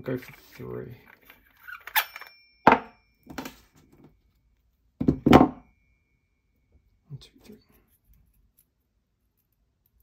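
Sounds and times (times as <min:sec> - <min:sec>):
metal parts knocking on desk: 0:02.6 - 0:03.6, 0:05.0 - 0:05.7.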